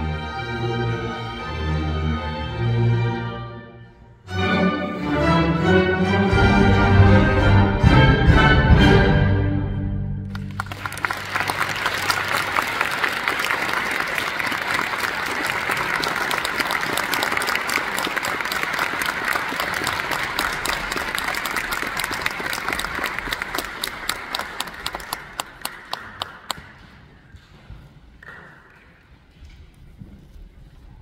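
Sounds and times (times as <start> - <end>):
audience applauding: 10.2 - 26.8.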